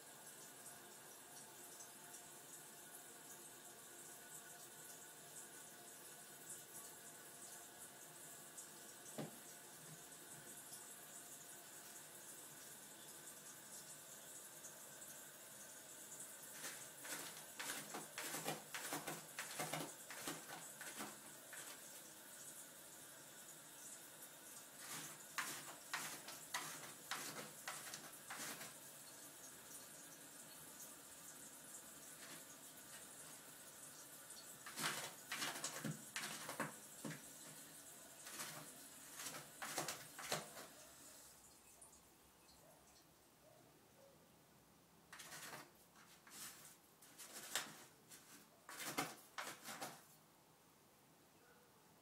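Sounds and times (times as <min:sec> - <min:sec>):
cat scratching litter in plastic tray: 0:16.5 - 0:21.9, 0:24.8 - 0:28.8, 0:34.6 - 0:37.6, 0:38.2 - 0:40.8, 0:45.1 - 0:50.2.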